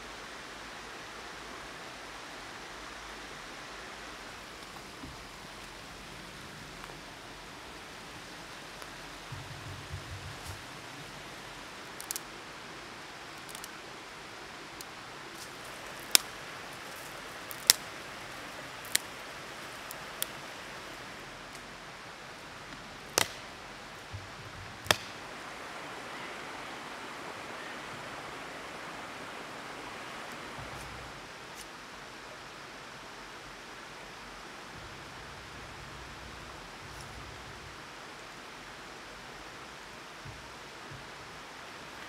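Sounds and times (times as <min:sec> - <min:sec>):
river rushing: 0:00.0 - 0:42.0
dry twigs snapping: 0:11.8 - 0:12.3, 0:13.4 - 0:13.8, 0:14.8 - 0:17.9, 0:18.7 - 0:20.4, 0:23.1 - 0:23.5, 0:24.8 - 0:25.2.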